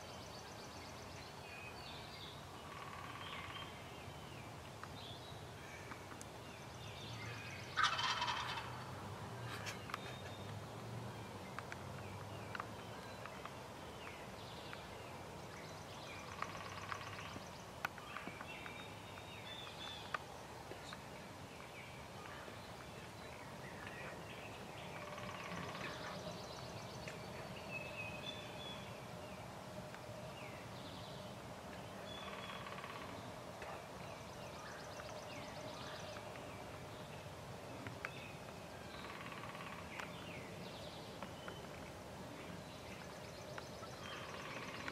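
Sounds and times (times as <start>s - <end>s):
songbird chirps and trills: 0.0s - 44.9s
wild turkeys calling: 7.7s - 8.9s, 32.2s - 33.2s, 39.0s - 40.1s.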